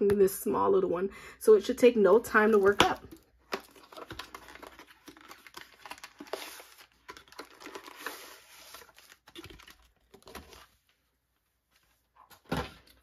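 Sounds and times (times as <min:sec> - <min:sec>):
scraping and plastic crinkling: 0:02.4 - 0:11.0.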